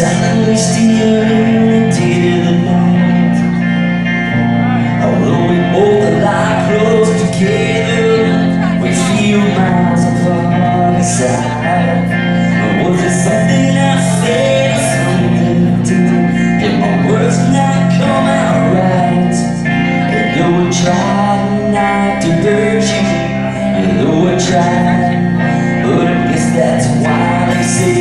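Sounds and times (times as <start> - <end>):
guitar: 0.0 - 28.0
live band playing: 0.0 - 28.0
person singing: 0.0 - 28.0.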